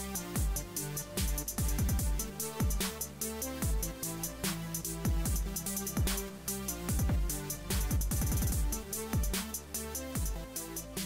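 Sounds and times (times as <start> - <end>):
electronic music: 0.0 - 11.0.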